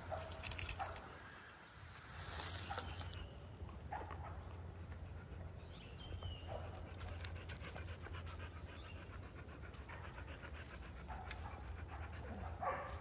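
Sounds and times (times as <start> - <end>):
dog panting: 4.7 - 13.0.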